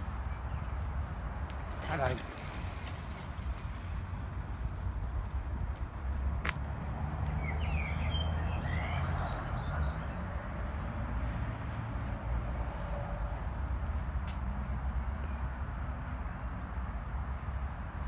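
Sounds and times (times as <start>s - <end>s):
bird chirping: 7.0s - 11.2s.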